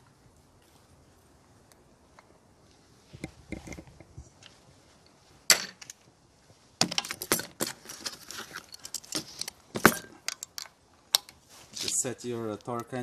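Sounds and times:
metal tools clicking and rattling: 0:07.0 - 0:11.4.

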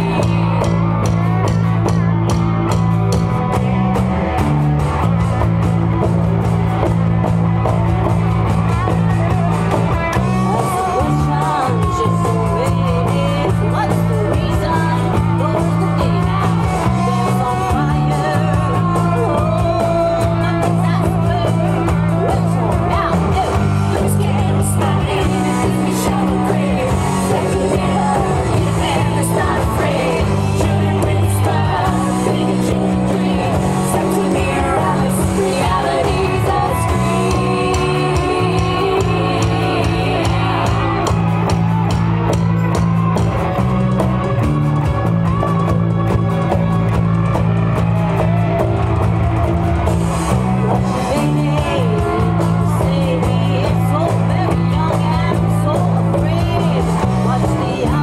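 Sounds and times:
women singing: 0:00.0 - 0:01.0, 0:10.1 - 0:41.4, 0:50.8 - 0:58.0
bass: 0:00.0 - 0:58.0
drums: 0:00.0 - 0:58.0
electric and acoustic guitars: 0:00.0 - 0:58.0.

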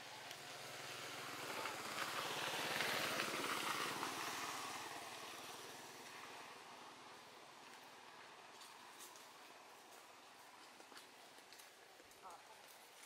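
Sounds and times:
vehicle engine passing by: 0:00.0 - 0:09.8.

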